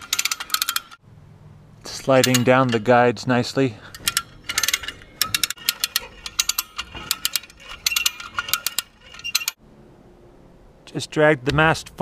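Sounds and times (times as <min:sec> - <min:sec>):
ratchet winch pawl clicking: 0:00.0 - 0:01.0, 0:02.2 - 0:02.9, 0:03.9 - 0:09.6.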